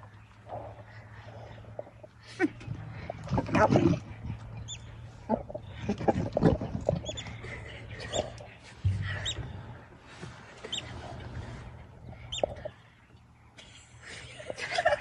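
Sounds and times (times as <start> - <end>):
animals snarling and scuffling: 0.0 - 13.0
dull low thump: 8.8 - 9.8.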